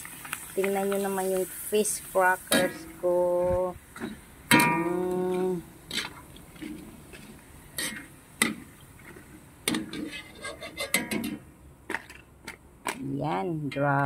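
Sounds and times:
wire strainer scraping metal wok: 9.8 - 11.4.

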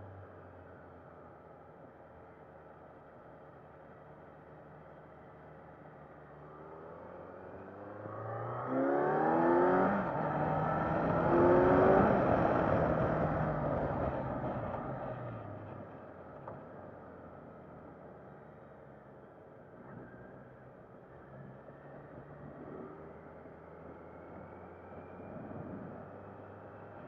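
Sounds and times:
motorcycle engine accelerating hard: 7.0 - 15.5
wind noise: 25.2 - 26.4.

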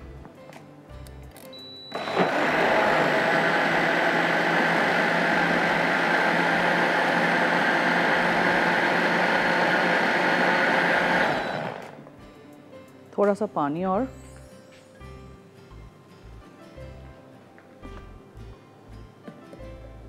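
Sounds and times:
electric blender running: 1.9 - 12.0.

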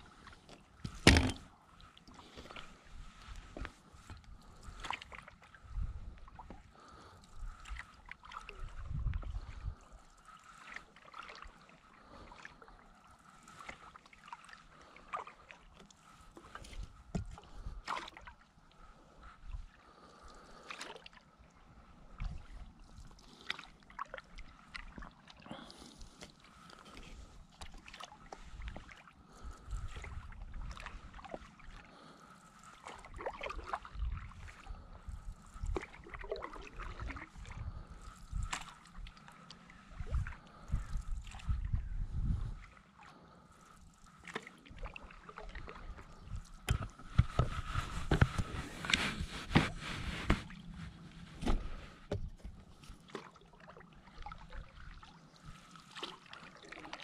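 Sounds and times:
paddle splashing in water: 10.2 - 18.4, 23.3 - 34.9, 35.6 - 40.6, 44.1 - 57.0.

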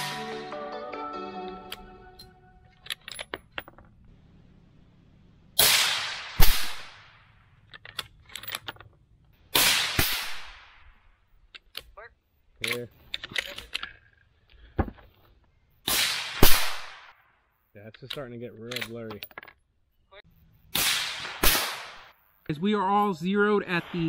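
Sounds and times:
rifle shots: 5.6 - 7.2, 9.5 - 10.8, 15.8 - 17.2, 20.7 - 22.2
rifle bolt clicks: 18.0 - 19.5.

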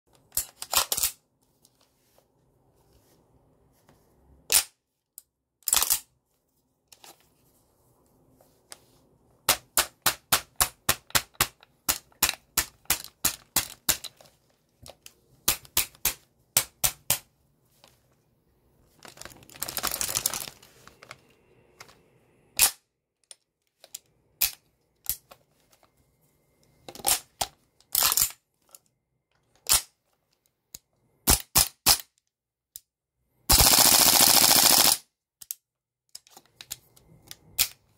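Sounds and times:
airsoft rifle firing: 33.5 - 35.0.

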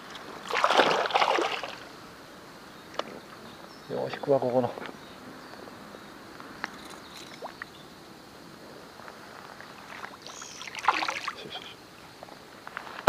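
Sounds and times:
fish splashing at lure: 0.4 - 1.8
water lapping: 0.4 - 1.9, 9.6 - 11.8.

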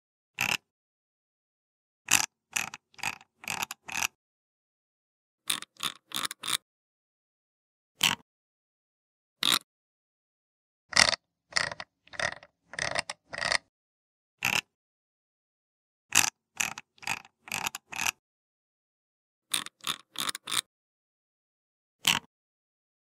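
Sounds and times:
mouse scroll wheel clicking: 0.4 - 0.7, 2.1 - 4.2, 5.5 - 6.6, 8.0 - 8.2, 9.4 - 9.6, 10.9 - 13.7, 14.4 - 14.7, 16.1 - 18.2, 19.5 - 20.7, 22.0 - 22.3.

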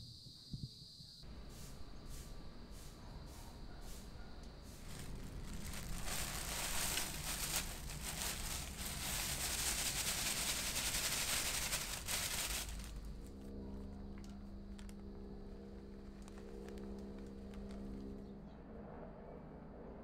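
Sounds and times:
plastic bag crinkling: 4.8 - 18.2.

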